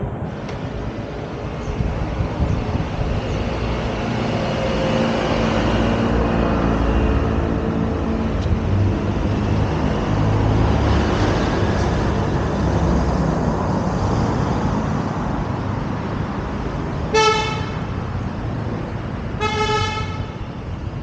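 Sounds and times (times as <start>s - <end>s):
road traffic: 0.0s - 21.0s
vehicle horn toots: 17.1s - 17.9s, 19.4s - 20.5s.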